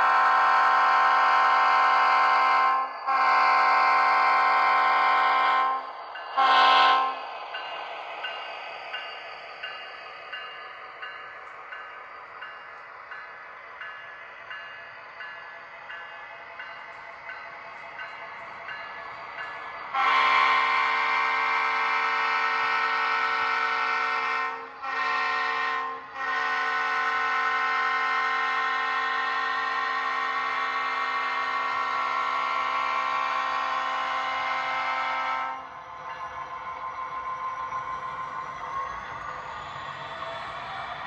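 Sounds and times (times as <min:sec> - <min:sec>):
chorded train horn blasts: 0:00.0 - 0:07.2, 0:19.9 - 0:35.7.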